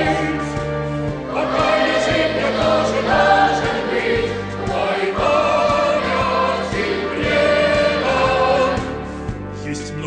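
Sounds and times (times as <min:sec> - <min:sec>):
boys' choir singing: 0:00.0 - 0:09.1.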